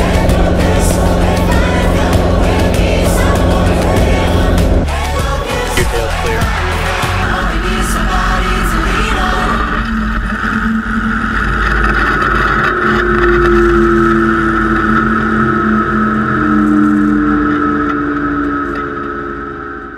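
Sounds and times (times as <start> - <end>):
helicopter engine drone: 0.0 - 10.4
helicopter whine: 0.0 - 10.5.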